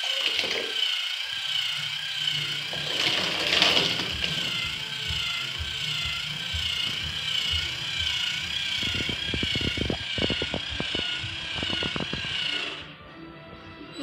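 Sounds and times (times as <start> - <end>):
small electric motor whining: 0.0 - 13.0.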